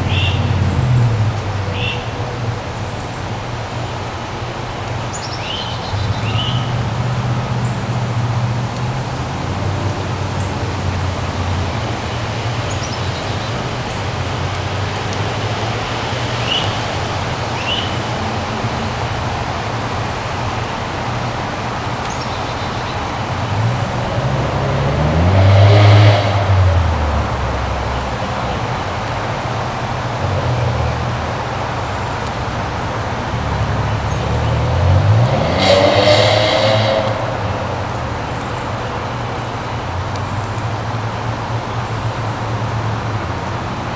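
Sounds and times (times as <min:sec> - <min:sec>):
road traffic rumble: 0:00.0 - 0:43.9
vehicle passing close: 0:22.8 - 0:29.0, 0:30.2 - 0:40.6.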